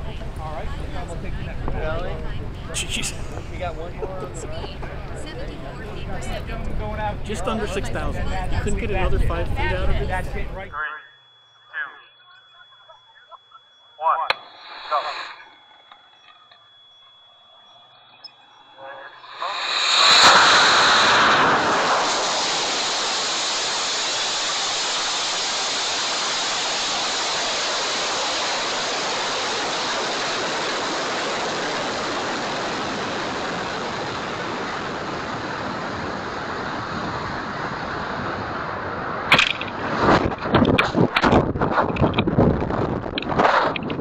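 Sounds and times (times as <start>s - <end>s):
rocket exhaust roar: 0.0s - 10.7s, 18.9s - 44.0s
choppy wind buffeting: 0.0s - 10.8s, 29.8s - 44.0s
sharp crack: 19.4s - 27.3s, 39.2s - 42.4s.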